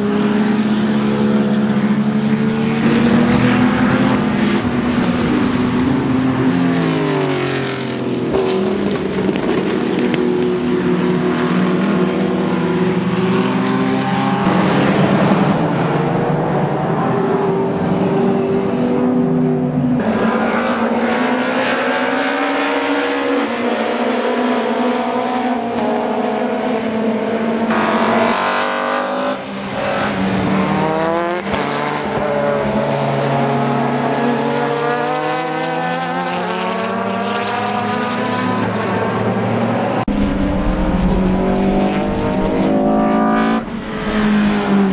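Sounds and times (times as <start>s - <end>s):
racing cars passing: 0.0s - 44.9s
engines revving through gears: 1.8s - 12.2s, 39.8s - 44.9s.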